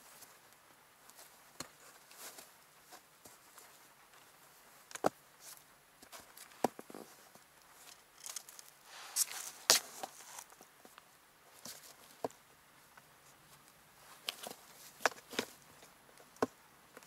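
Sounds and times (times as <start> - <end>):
pad rustling: 14.0 - 16.5.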